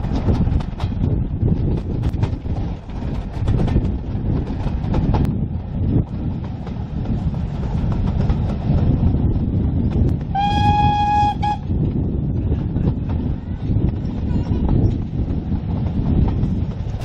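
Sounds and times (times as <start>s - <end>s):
train rumbling: 0.0s - 17.0s
train horn: 10.3s - 11.7s.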